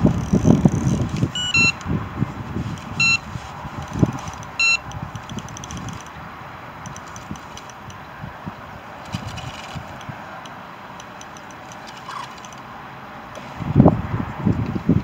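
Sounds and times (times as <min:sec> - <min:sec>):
wind buffeting microphone: 0:00.0 - 0:10.4, 0:13.4 - 0:15.0
bite alarm high beeps: 0:01.4 - 0:01.8, 0:03.0 - 0:03.2, 0:04.6 - 0:04.8.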